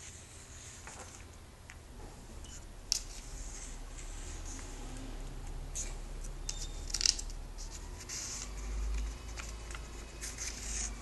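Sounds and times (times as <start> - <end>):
paper pages rustling: 6.8 - 11.0.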